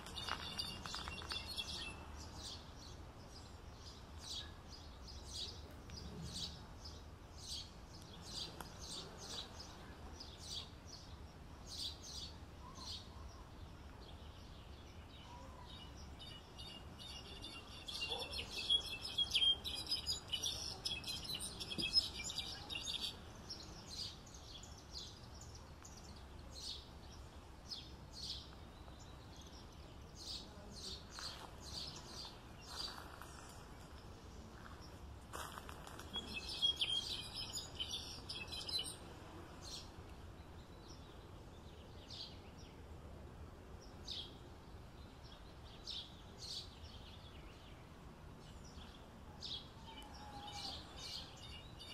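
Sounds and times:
goldfinch singing: 0.0s - 2.6s, 15.8s - 24.7s, 36.0s - 39.0s
faint background noise: 0.0s - 51.9s.

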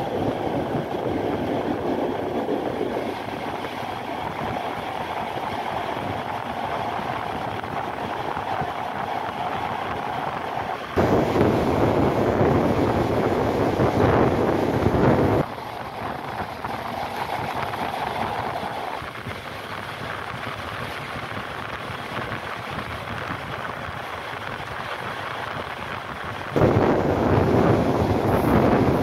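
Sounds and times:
train running on rails: 0.0s - 29.0s
air rushing past window: 8.7s - 19.0s, 26.5s - 29.0s.

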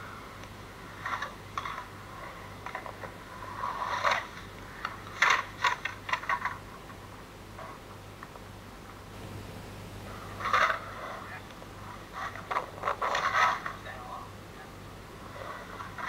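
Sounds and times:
steady low hum: 0.0s - 16.0s
skateboard wheels rolling on concrete: 0.9s - 7.1s, 10.1s - 13.8s.

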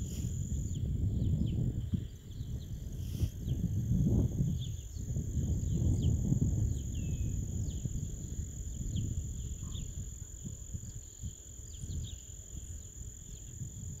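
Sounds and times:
steady high-pitched whine: 0.0s - 14.0s
bird chirps: 8.8s - 10.0s.

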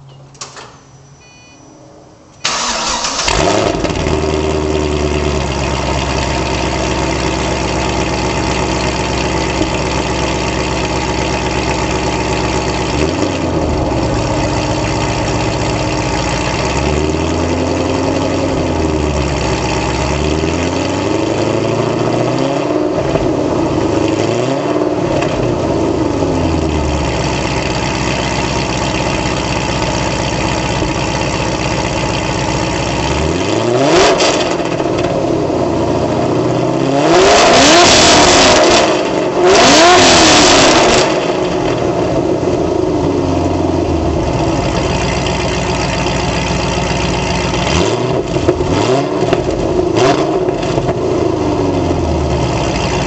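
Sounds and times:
car engine cold start and idle: 0.0s - 53.0s
engine revving: 2.5s - 7.4s, 11.5s - 27.9s, 33.0s - 42.2s, 43.5s - 53.0s.

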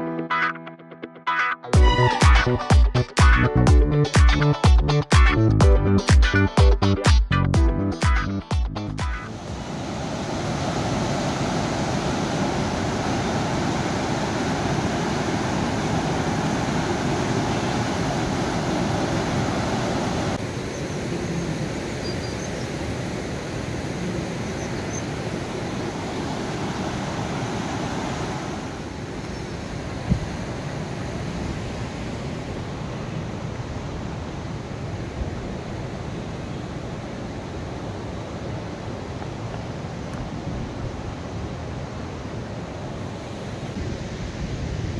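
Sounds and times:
fast river rushing: 9.2s - 44.9s.

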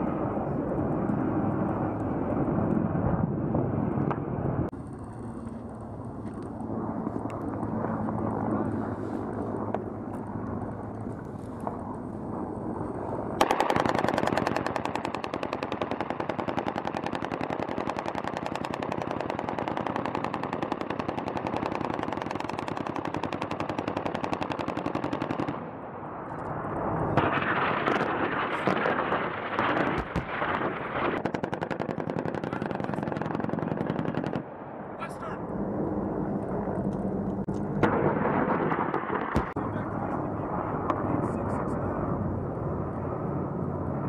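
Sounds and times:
rapid automatic cannon fire: 13.4s - 25.7s, 27.2s - 34.6s, 37.8s - 39.6s.

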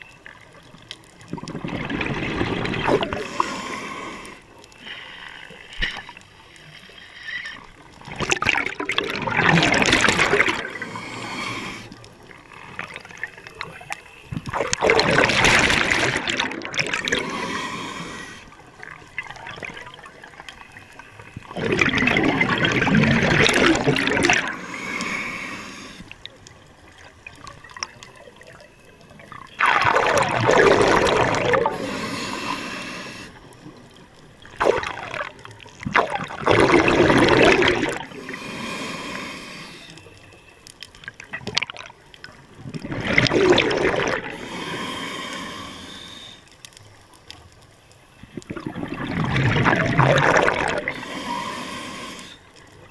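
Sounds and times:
exhaled bubbles rushing: 1.2s - 3.4s, 8.0s - 11.1s, 14.4s - 17.4s, 18.8s - 24.6s, 29.2s - 32.0s, 33.7s - 38.3s, 41.1s - 44.4s, 48.3s - 51.0s.

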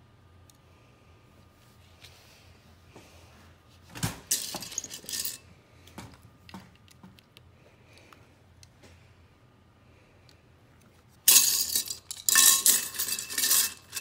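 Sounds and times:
plastic bricks clattering in ceramic bowl: 11.3s - 14.0s.

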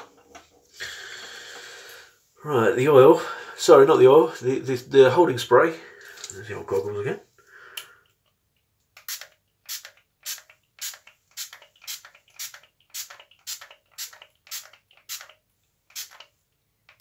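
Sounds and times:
pump spray bottle hissing: 9.0s - 16.3s.

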